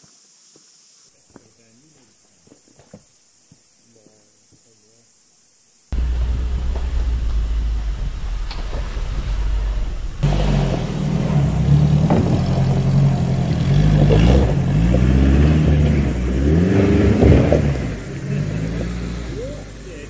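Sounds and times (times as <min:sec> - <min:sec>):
van engine rumbling uphill: 0:05.9 - 0:20.0
sharp knocks: 0:10.2 - 0:13.1.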